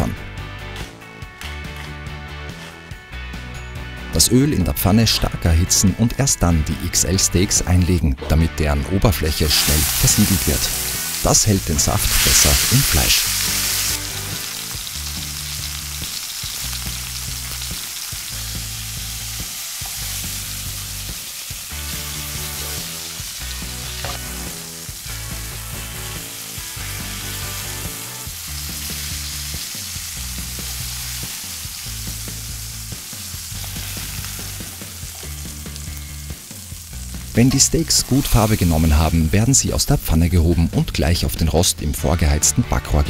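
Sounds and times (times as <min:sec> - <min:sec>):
background music with bass line: 0:00.0 - 0:43.0
steaks sizzling in frying pan: 0:09.4 - 0:39.5.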